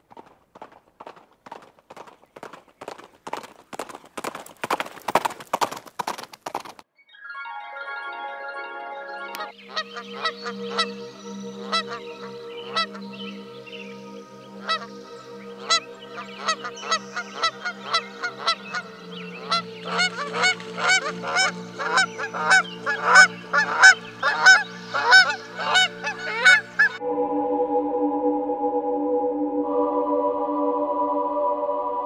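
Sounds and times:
sustained organ-like music: 7.0 - 32.0
held musical drone: 7.3 - 32.0
waterfowl honking: 9.3 - 13.8, 14.4 - 27.0.

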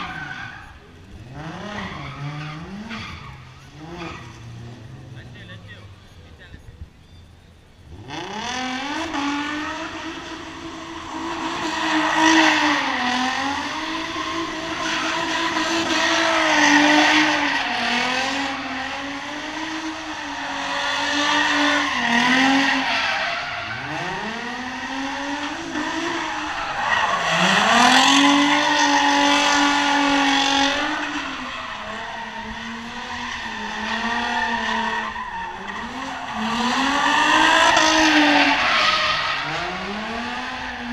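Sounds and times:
tyre squeal: 0.0 - 4.8, 19.6 - 40.9
car engine at high revs: 0.0 - 6.9, 7.7 - 40.9.

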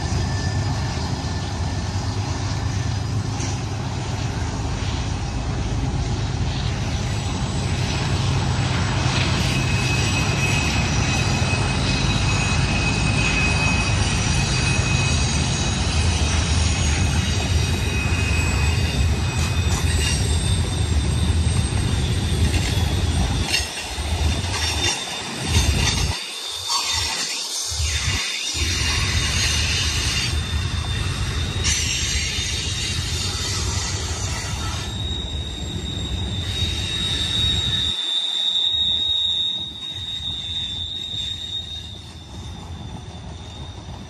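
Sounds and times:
freight train wheels rumbling: 0.0 - 44.0
high wheel squeal: 0.0 - 44.0.

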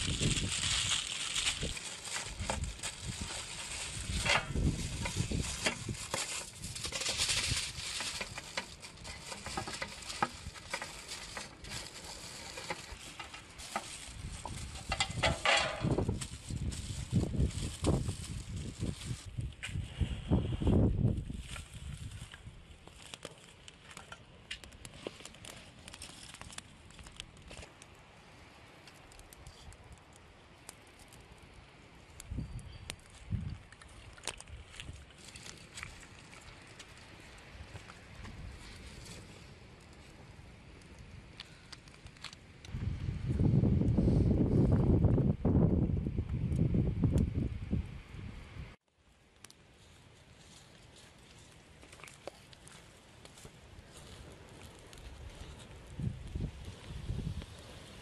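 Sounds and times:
aluminium foil crinkling: 0.0 - 19.6, 21.1 - 27.9, 32.1 - 40.2
kindling fire crackling: 0.0 - 58.0.

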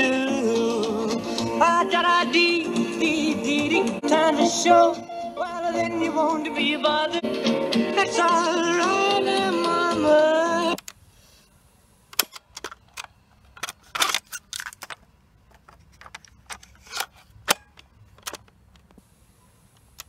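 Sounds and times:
plastic clicks of cassette keys: 12.2 - 19.0.

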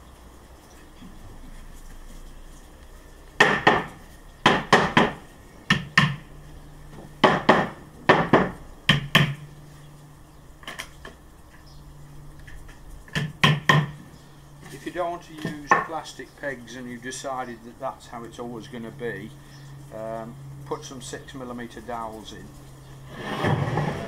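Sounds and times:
mallet knocking on wooden panels: 3.4 - 6.2, 7.0 - 9.4, 13.1 - 14.0.

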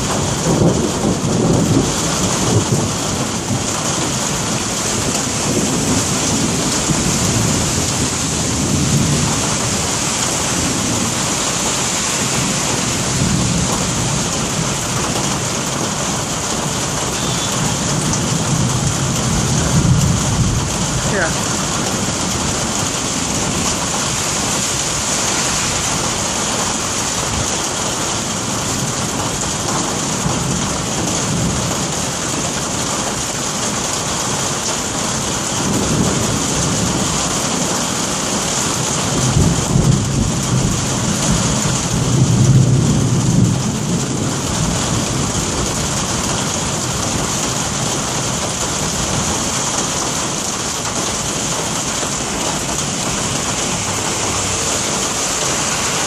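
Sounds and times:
rolling thunder: 0.0 - 32.5, 35.6 - 56.0
rain hissing: 0.0 - 56.0.

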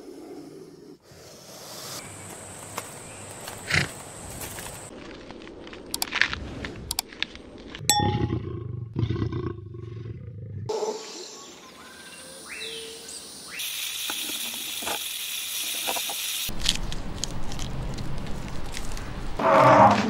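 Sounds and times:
snake hissing: 0.0 - 2.0.

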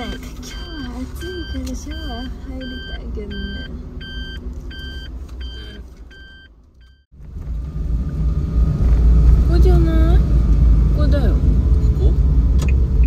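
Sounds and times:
reversing alarm beeping: 0.0 - 7.1
car driving rumble: 0.0 - 13.0.

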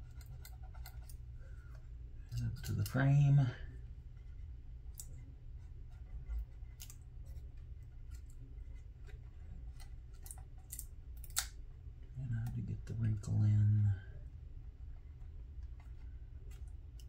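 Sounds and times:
low steady hum: 0.0 - 17.0
clicks and scratches on foil: 2.3 - 3.5.

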